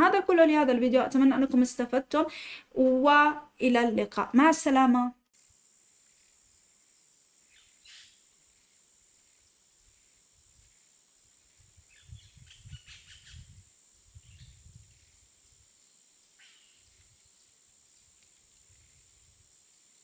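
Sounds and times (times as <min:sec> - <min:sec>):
faint high hiss: 0:02.2 - 0:20.0
faint bird chirps: 0:07.4 - 0:09.4, 0:11.8 - 0:15.3, 0:16.4 - 0:17.5.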